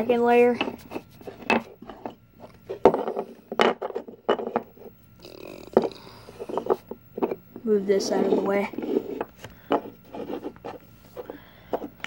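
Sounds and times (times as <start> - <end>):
wooden puzzle pieces knocking: 0.5 - 4.8.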